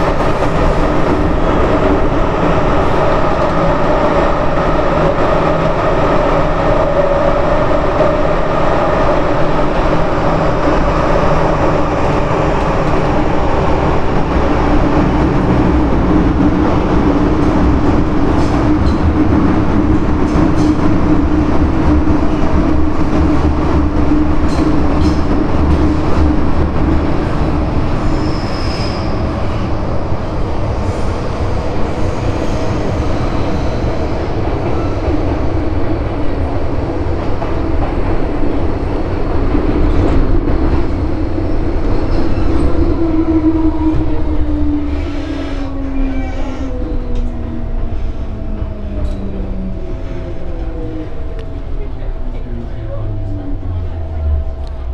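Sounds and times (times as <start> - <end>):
train hum: 0.0 - 54.9
train wheels rumbling on rail: 0.0 - 54.9
brief high squeal: 28.1 - 29.2.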